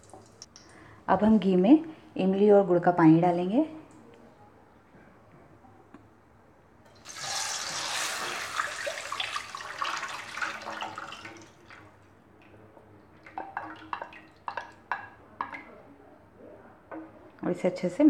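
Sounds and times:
liquid splashing into hot oil: 7.0 - 11.9.

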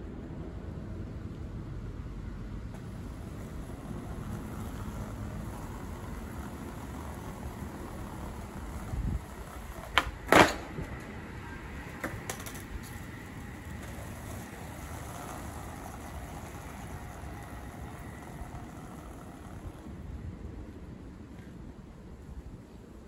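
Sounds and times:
skateboard hitting pavement: 2.7 - 19.9.

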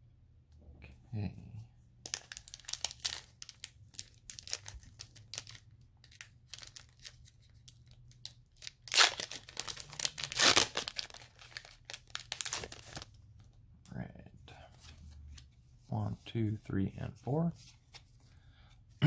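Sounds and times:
foil wrapper crinkling: 2.1 - 13.1
foil wrapper ripping: 8.6 - 13.0.

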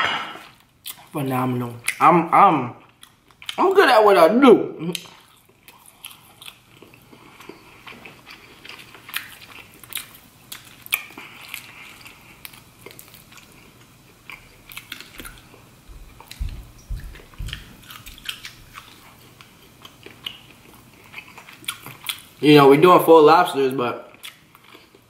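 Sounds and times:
chewing and wet mouth sounds: 0.4 - 3.6, 4.8 - 22.4, 24.1 - 25.0
low thumps: 15.9 - 17.8.

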